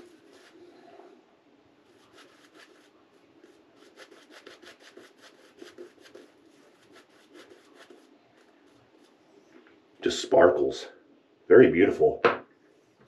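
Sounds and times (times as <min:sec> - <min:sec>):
shaving brush strokes on face: 0:00.0 - 0:00.9, 0:01.9 - 0:09.2.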